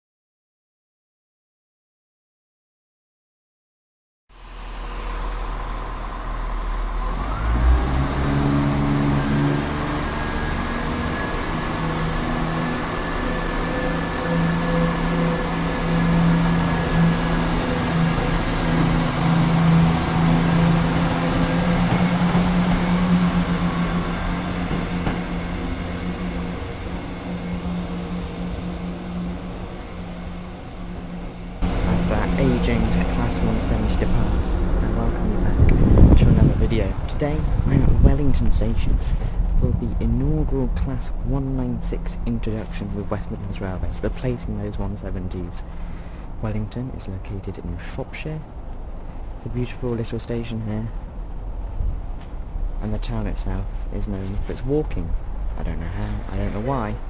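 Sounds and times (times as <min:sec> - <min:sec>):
high whine: 0:04.3 - 0:47.8
diesel train engines: 0:04.3 - 0:57.0.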